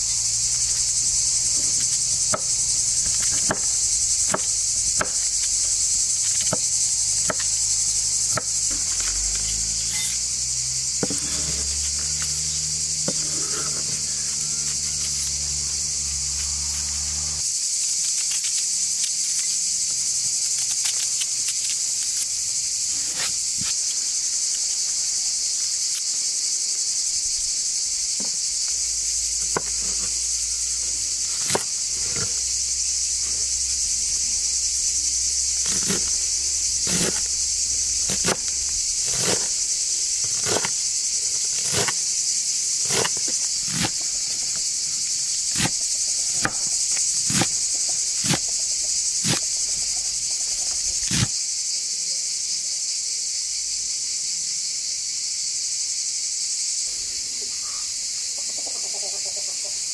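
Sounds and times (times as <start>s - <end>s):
insects chorus: 0.0s - 59.9s
knife cutting onion: 0.6s - 10.2s, 11.0s - 15.6s, 22.9s - 23.8s, 28.8s - 42.1s, 42.8s - 44.6s, 45.4s - 50.0s, 50.6s - 51.3s
knife on wooden chopping board: 29.5s - 30.2s, 31.4s - 32.5s, 35.6s - 36.2s, 36.8s - 37.4s, 38.0s - 39.6s, 40.2s - 40.8s, 41.6s - 42.0s, 42.8s - 44.0s.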